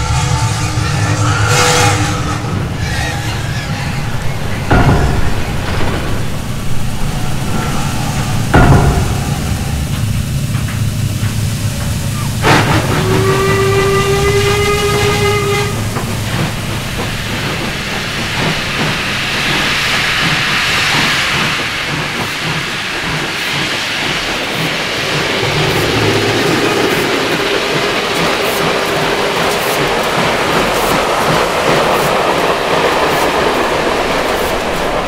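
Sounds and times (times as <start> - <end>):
steam whistle blowing: 0.0 - 3.4, 12.1 - 16.6
low rumble: 0.0 - 13.6, 15.7 - 29.3
steam hissing: 0.0 - 35.0.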